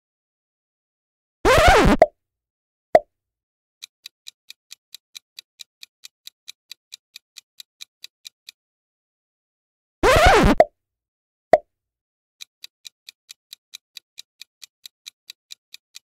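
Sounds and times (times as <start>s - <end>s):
clock-like ticking: 3.8s - 8.6s, 12.4s - 16.0s.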